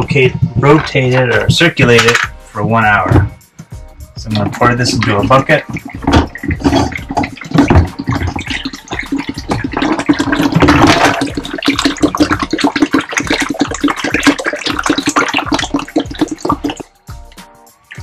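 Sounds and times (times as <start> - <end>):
liquid pouring into plastic bucket: 4.4 - 18.0.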